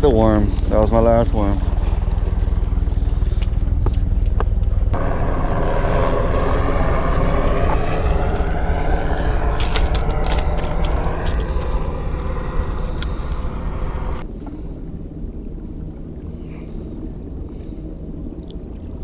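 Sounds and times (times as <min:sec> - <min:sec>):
road noise: 0:00.0 - 0:14.3
wind rumble: 0:00.0 - 0:19.0.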